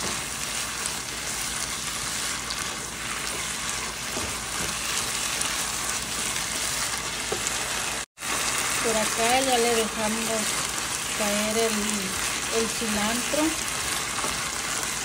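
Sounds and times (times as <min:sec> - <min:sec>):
spoon stirring in a skillet: 0:00.0 - 0:09.2
food sizzling in a skillet: 0:00.0 - 0:15.0.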